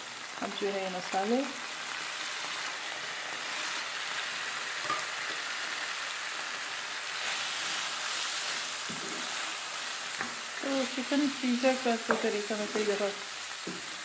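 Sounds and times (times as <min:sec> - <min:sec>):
chicken sizzling in hot oil: 0:00.0 - 0:14.0.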